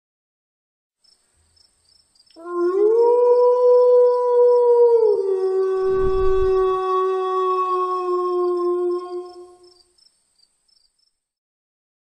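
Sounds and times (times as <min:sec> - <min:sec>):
wolf howl: 0:02.4 - 0:09.8
low rumble: 0:05.8 - 0:06.9.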